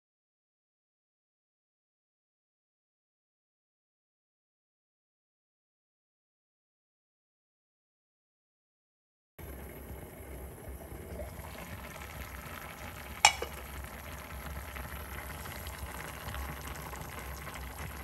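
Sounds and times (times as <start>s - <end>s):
broth bubbling in a pot: 9.4s - 18.0s.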